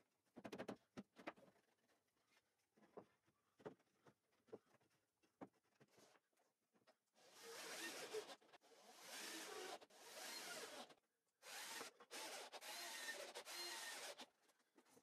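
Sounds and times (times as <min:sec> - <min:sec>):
cordless drill driving screws: 0:07.4 - 0:14.3.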